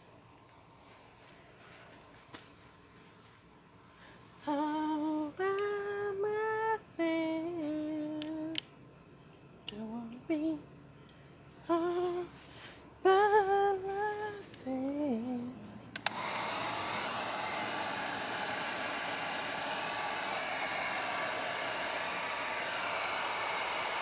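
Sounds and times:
switch click: 0:16.0 - 0:16.2
heat gun blowing hiss: 0:16.0 - 0:24.0.

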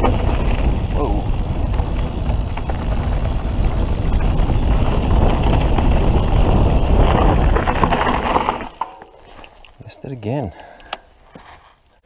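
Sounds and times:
wind buffeting microphone: 0:00.0 - 0:08.7
bike clicks and rattles: 0:00.0 - 0:09.8
tyres rumbling over dirt: 0:00.0 - 0:09.9.

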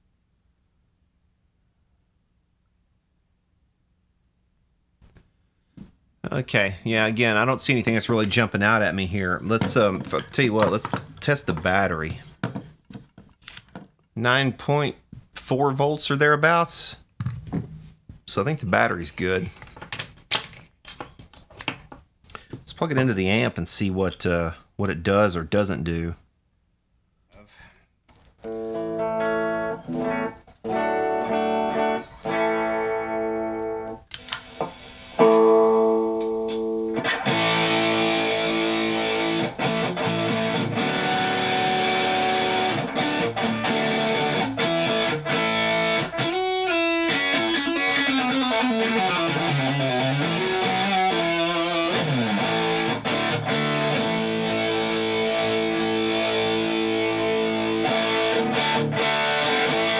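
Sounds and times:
distorted electric guitar: 0:28.4 - 0:59.9.

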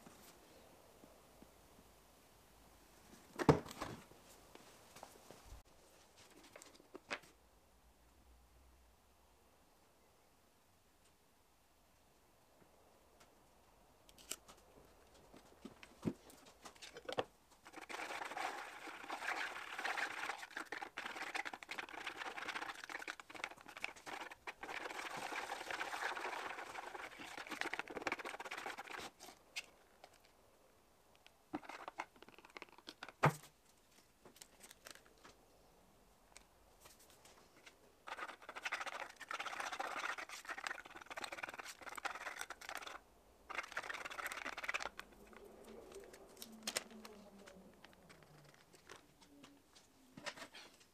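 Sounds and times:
stir stick scraping plastic tub: 0:16.8 - 0:30.2, 0:38.0 - 0:46.5.

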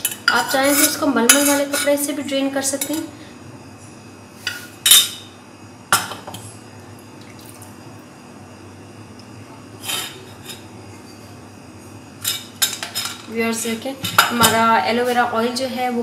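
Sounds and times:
kitchenware clinking and knocking: 0:14.0 - 0:14.7.

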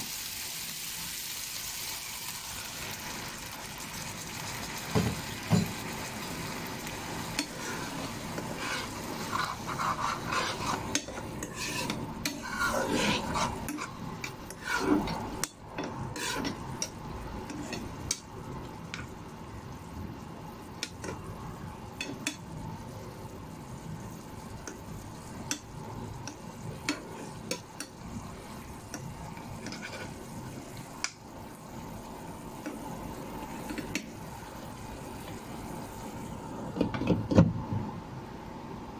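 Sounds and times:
pork sizzling: 0:00.0 - 0:36.6
metal spoon scraping pan: 0:07.4 - 0:18.2, 0:29.4 - 0:30.3.

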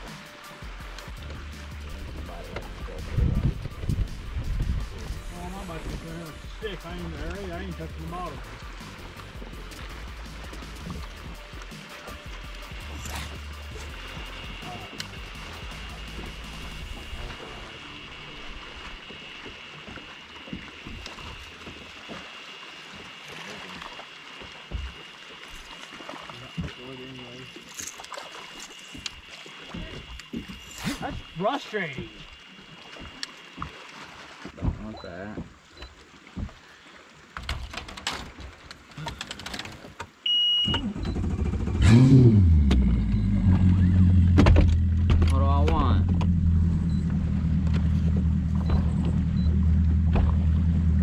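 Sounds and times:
small waves lapping against hull: 0:00.0 - 0:51.0
outboard motor starting and idling: 0:00.7 - 0:33.5, 0:37.4 - 0:51.0
clicks and knocks of gear: 0:37.4 - 0:40.2
short high beep: 0:40.3 - 0:41.3.

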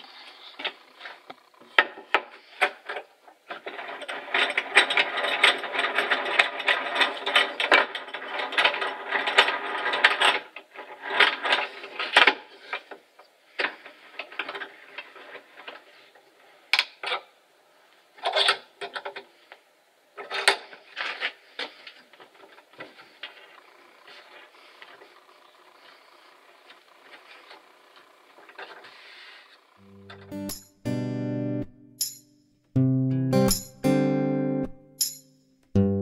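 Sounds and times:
vise screw clicking and rattling: 0:01.8 - 0:13.0.

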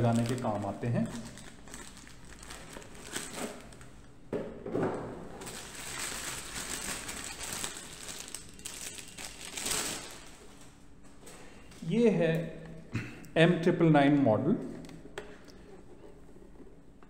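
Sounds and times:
plastic bag crinkling: 0:00.0 - 0:04.0, 0:05.4 - 0:10.8.

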